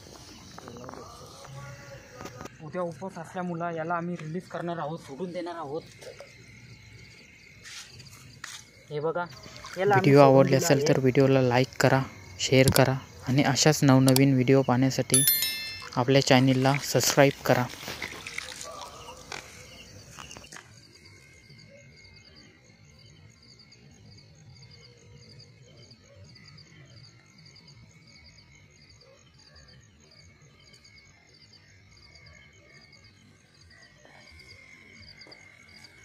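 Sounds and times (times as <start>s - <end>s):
high repeating chirp: 15.2s - 16.0s.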